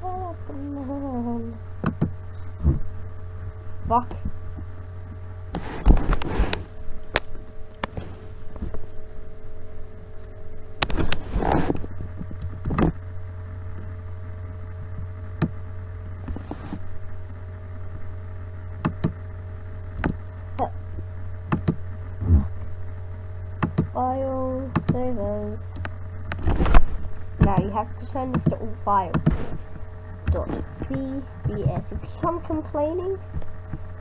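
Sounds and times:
low electrical hum: 0:00.0 - 0:34.0
noisy clicking and rustling: 0:10.8 - 0:13.0, 0:18.8 - 0:19.2, 0:20.0 - 0:20.2, 0:21.5 - 0:21.9, 0:23.6 - 0:24.0, 0:25.7 - 0:33.9.

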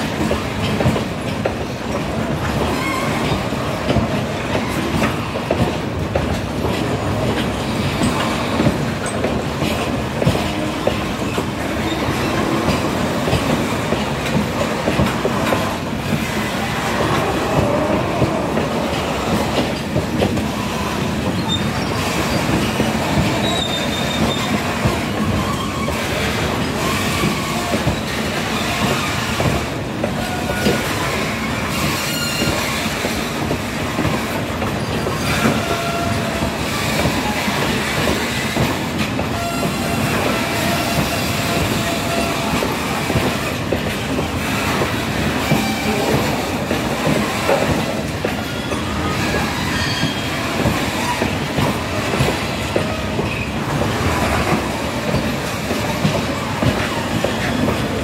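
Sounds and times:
freight train wheels rumbling: 0:00.0 - 0:58.0
train wheels squealing: 0:02.6 - 0:03.6, 0:19.8 - 0:29.5, 0:30.2 - 0:33.4, 0:34.7 - 0:43.4, 0:45.4 - 0:46.5, 0:48.2 - 0:51.4, 0:56.8 - 0:58.0.

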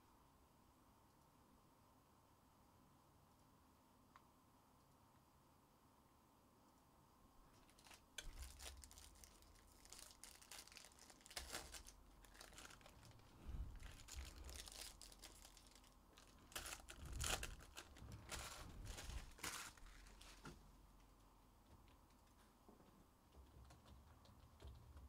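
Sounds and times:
foil wrappers crinkling and tearing: 0:07.5 - 0:20.5.

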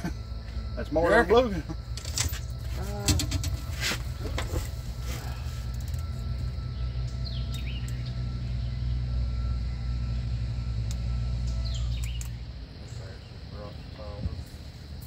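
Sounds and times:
boat motor rumbling: 0:00.0 - 0:15.0
bird chirping: 0:05.2 - 0:14.2.

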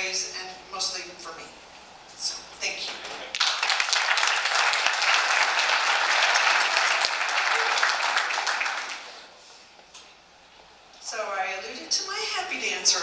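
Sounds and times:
audience applauding: 0:03.3 - 0:09.4.

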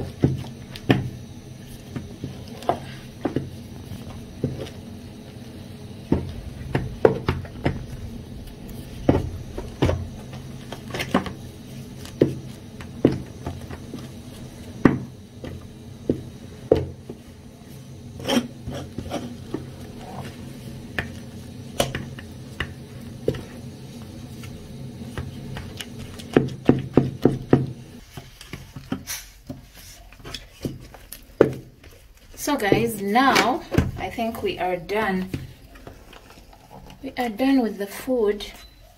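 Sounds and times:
wooden stick scraping dough: 0:06.0 - 0:33.4
stick knocking against pot: 0:09.0 - 0:14.1, 0:14.8 - 0:17.2, 0:21.8 - 0:23.5, 0:25.1 - 0:29.7.

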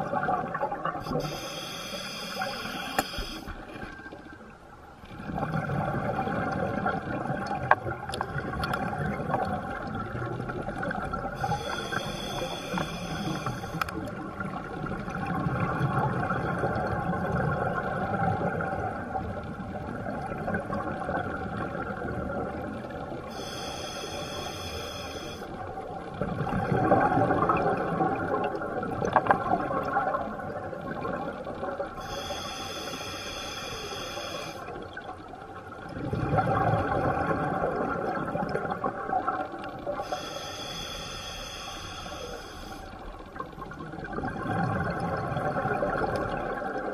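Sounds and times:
underwater rumble: 0:00.0 - 0:46.9
diver breathing through regulator: 0:01.1 - 0:03.5, 0:11.4 - 0:13.9, 0:23.3 - 0:25.5, 0:32.0 - 0:34.7, 0:40.0 - 0:43.0.

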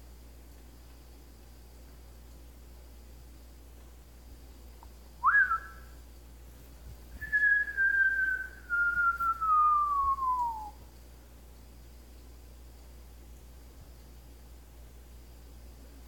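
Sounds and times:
parrot whistling: 0:05.2 - 0:05.9, 0:07.2 - 0:10.8.

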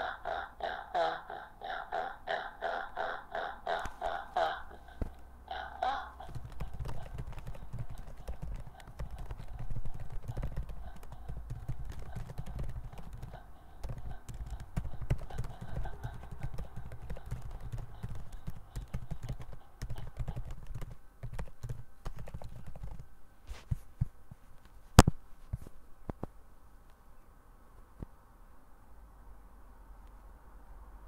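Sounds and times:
garbled synthetic voice: 0:00.0 - 0:20.6
keyboard typing clicks: 0:06.2 - 0:23.0.

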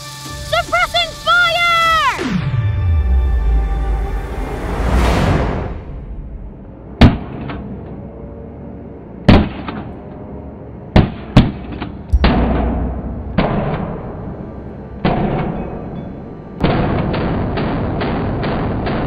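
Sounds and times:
dramatic orchestral music: 0:00.0 - 0:11.0, 0:12.1 - 0:16.6
heavy percussive booms: 0:12.1 - 0:16.0.

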